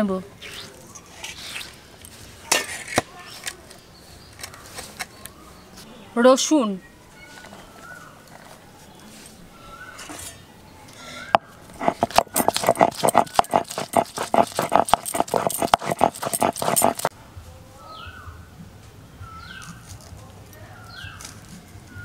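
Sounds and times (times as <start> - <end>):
stone crushing garlic: 11.8 - 17.1.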